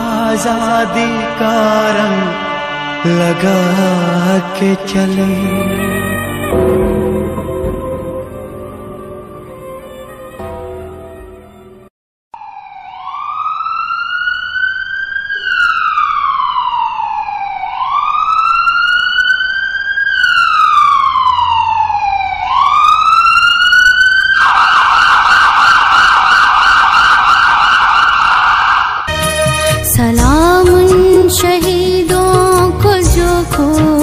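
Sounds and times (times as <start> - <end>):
music: 0.0 - 11.9, 29.1 - 34.0
emergency siren wailing and yelping: 12.4 - 29.1.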